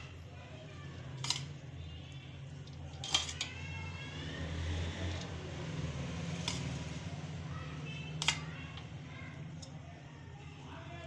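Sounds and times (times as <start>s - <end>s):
metal utensil clinking on a pot: 1.2s - 1.6s, 2.6s - 3.6s, 6.4s - 6.8s, 8.2s - 8.9s.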